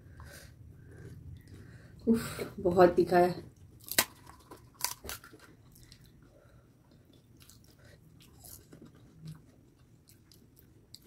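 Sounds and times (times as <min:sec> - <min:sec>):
faint chewing: 0:00.1 - 0:02.1, 0:03.5 - 0:11.0
crisp shells crunching: 0:03.8 - 0:06.1.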